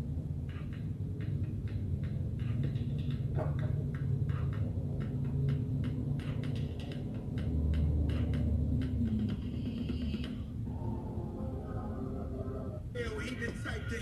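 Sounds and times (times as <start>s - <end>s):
instrumental beat through small speaker: 0.1s - 10.6s.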